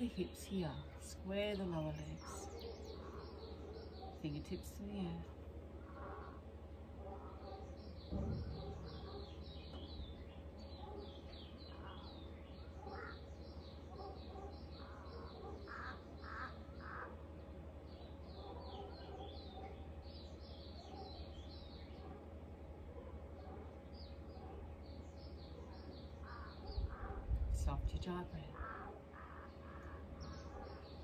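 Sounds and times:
small birds chirping: 0.0 - 31.0
crow cawing: 12.8 - 13.2, 14.8 - 17.2, 26.2 - 27.2, 28.6 - 30.1.

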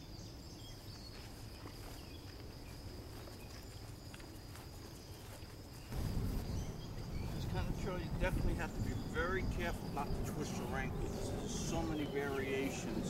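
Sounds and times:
insects trilling: 0.0 - 13.0
footsteps on grass: 1.0 - 7.4
low rumble: 5.9 - 13.0.

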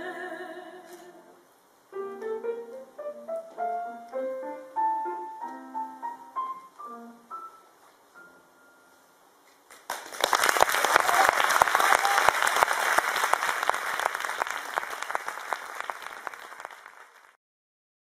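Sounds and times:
audience applause: 9.7 - 17.4.

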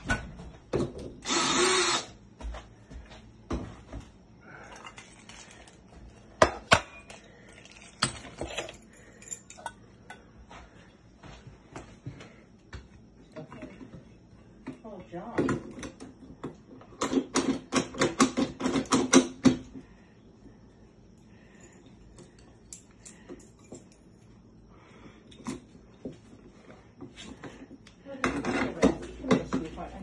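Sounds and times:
tools knocking and clicking: 15.4 - 19.7.

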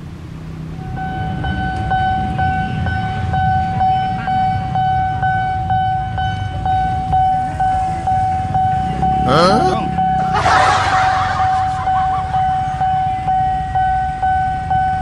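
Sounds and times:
level crossing warning bell: 0.7 - 15.0
steady low rumble: 9.8 - 15.0.

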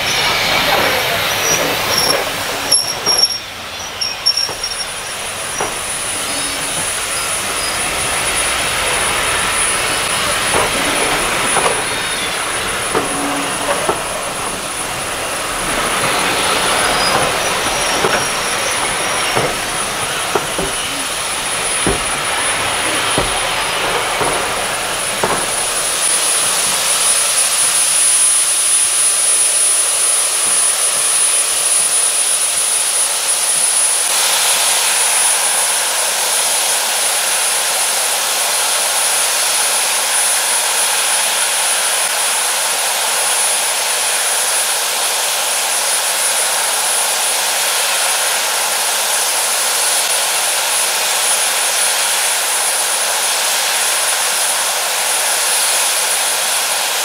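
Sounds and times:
train wheels clicking: 0.0 - 31.9
steam hissing: 0.0 - 33.2.

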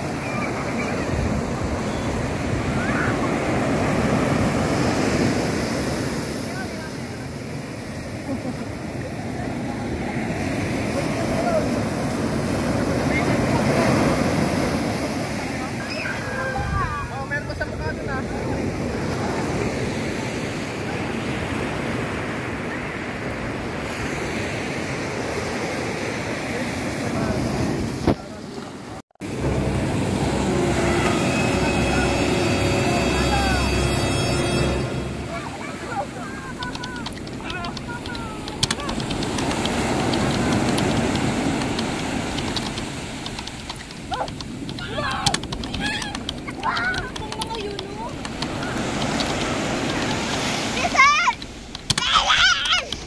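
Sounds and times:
ocean surf breaking on beach: 0.0 - 34.2, 35.0 - 53.0
surf breaking on beach: 35.3 - 53.0.

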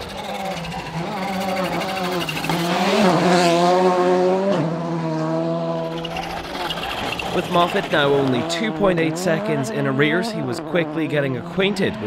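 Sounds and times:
rally car engine passing by: 0.0 - 12.0.

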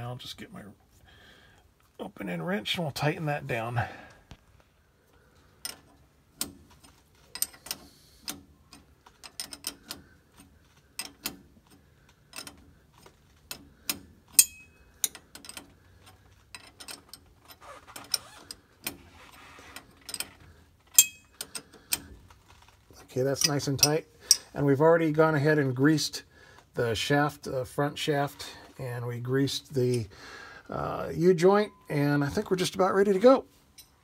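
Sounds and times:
wrenches clicking on metal: 5.6 - 24.6.

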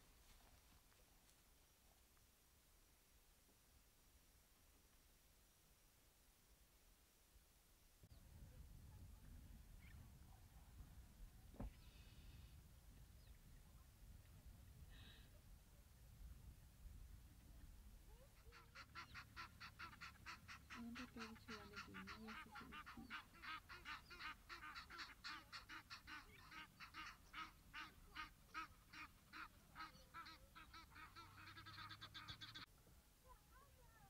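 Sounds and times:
bird honking calls: 18.4 - 32.7.

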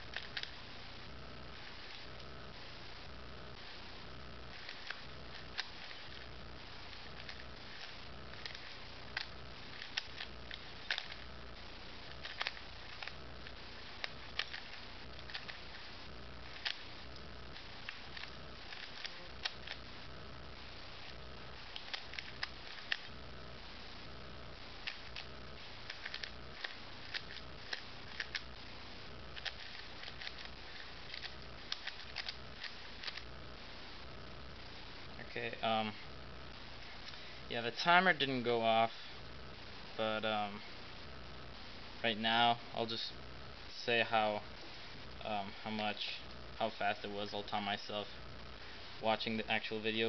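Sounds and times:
low hum: 0.0 - 50.0
puzzle cube clicking: 0.1 - 0.6, 4.6 - 6.2, 6.9 - 11.2, 12.1 - 13.2, 13.8 - 15.9, 16.5 - 16.9, 17.6 - 19.8, 21.7 - 23.1, 24.8 - 28.5, 29.4 - 33.2.

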